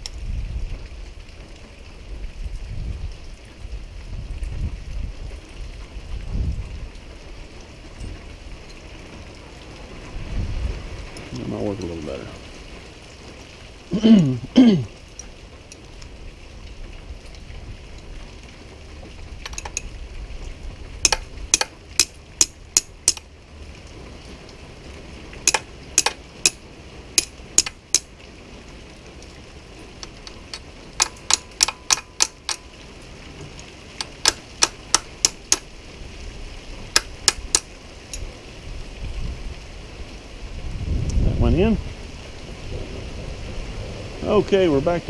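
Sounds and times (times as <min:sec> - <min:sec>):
hand tool tapping on metal: 0:21.0 - 0:23.2, 0:25.5 - 0:26.6, 0:27.2 - 0:28.1, 0:30.0 - 0:32.7, 0:34.0 - 0:35.7, 0:36.9 - 0:38.2.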